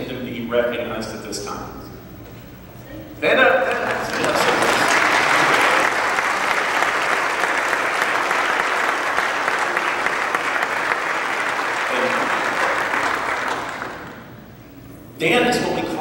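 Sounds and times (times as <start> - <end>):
congregation applauding: 3.6 - 14.6.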